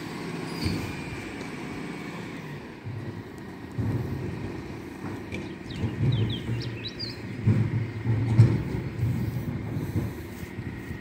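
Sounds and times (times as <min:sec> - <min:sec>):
diesel truck engine rumbling: 0:00.0 - 0:11.0
bird chirps: 0:05.4 - 0:07.3.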